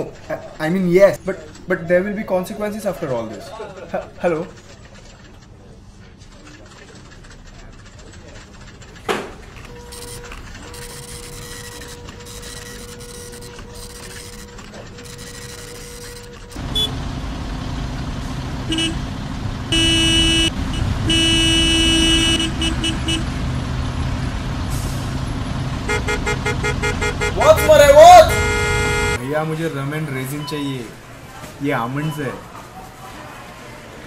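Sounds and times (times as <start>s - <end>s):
engines running in traffic jam: 0.0s - 31.6s
car horns honking: 9.6s - 17.4s, 18.5s - 23.5s, 25.7s - 29.2s.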